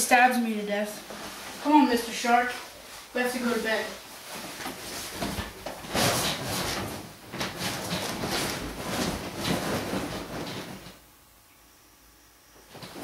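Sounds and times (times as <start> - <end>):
bedding rustling: 0.2 - 11.0, 12.7 - 13.0.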